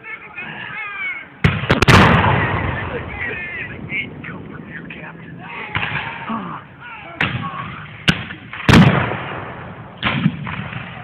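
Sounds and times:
voices: 0:00.0 - 0:08.6
musket shots: 0:01.4 - 0:02.8, 0:07.2 - 0:11.0.

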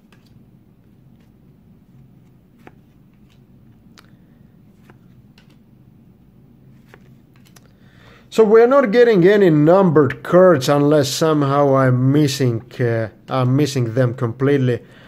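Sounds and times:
trading cards flipped by hand: 0:00.0 - 0:05.7, 0:06.7 - 0:07.8
low room hum: 0:00.0 - 0:15.0.

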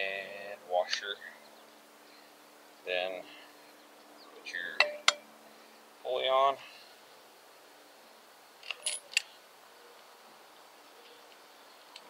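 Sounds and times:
metallic clicks and clinks: 0:08.6 - 0:09.3.

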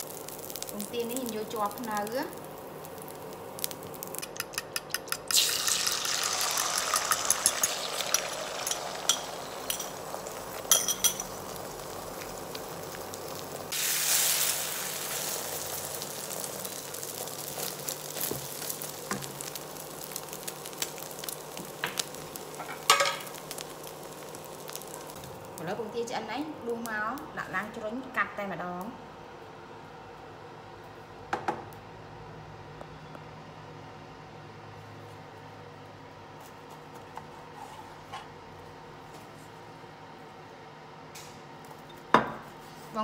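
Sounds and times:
egg sizzling in hot oil: 0:00.0 - 0:25.7.

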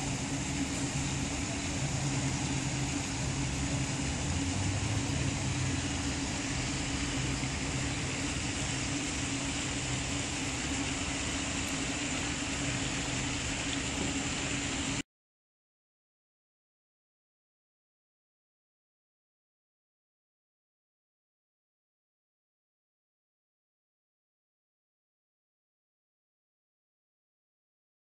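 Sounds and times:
constant hiss: 0:00.0 - 0:15.0
low engine-like hum: 0:00.0 - 0:15.0.

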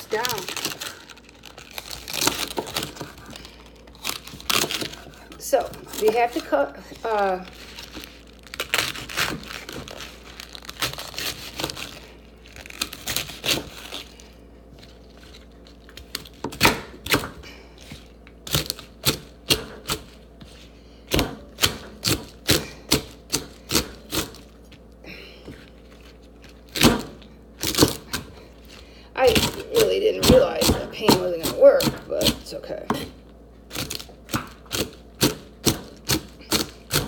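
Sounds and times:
leaves rustling and tearing: 0:00.0 - 0:16.4
knife chopping on cutting board: 0:21.1 - 0:24.4, 0:29.3 - 0:33.1, 0:33.8 - 0:37.0.

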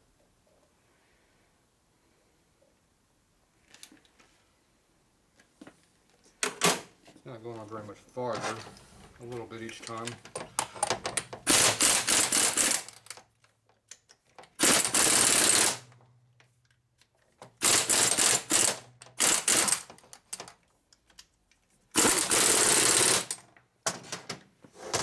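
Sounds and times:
pneumatic impact tool hammering: 0:11.4 - 0:13.1, 0:14.6 - 0:15.9, 0:17.6 - 0:20.0, 0:22.0 - 0:23.4.

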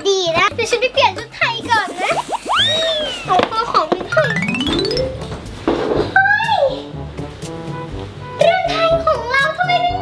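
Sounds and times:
rising chime-like notes: 0:04.1 - 0:05.6.

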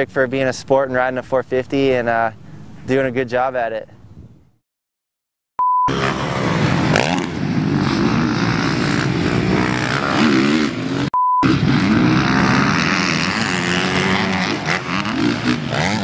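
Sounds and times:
test tone beep: 0:05.6 - 0:06.0, 0:11.2 - 0:11.5
motocross bike engine revving: 0:05.9 - 0:16.0.

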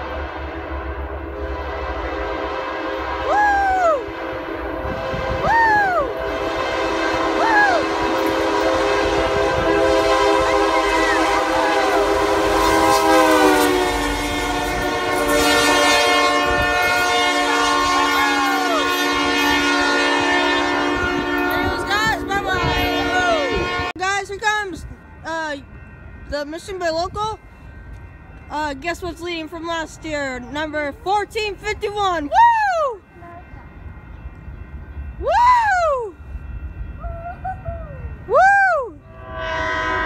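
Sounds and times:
train horn blast: 0:00.0 - 0:24.2, 0:39.1 - 0:40.0
train rolling past: 0:00.0 - 0:40.0
excited whoops: 0:03.2 - 0:04.1, 0:05.4 - 0:06.2, 0:07.4 - 0:07.9, 0:32.3 - 0:33.0, 0:35.2 - 0:36.2, 0:37.0 - 0:39.0.

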